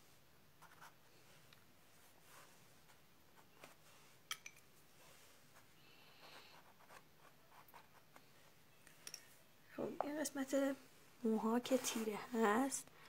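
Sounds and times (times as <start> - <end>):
pencil scratching on card: 5.5 - 8.2.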